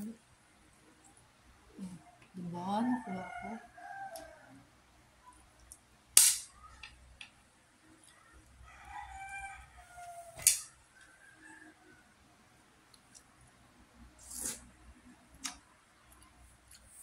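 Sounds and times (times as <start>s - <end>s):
rooster crowing: 2.7s - 4.7s, 8.6s - 12.2s
sharp loud clicks: 6.2s - 6.5s.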